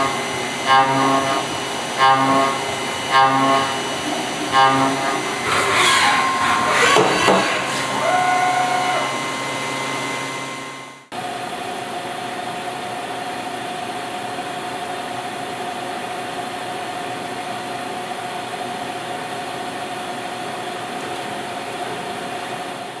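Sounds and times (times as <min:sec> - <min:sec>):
milling machine cutting metal: 0:00.0 - 0:11.0
steady machine hum: 0:00.0 - 0:11.1.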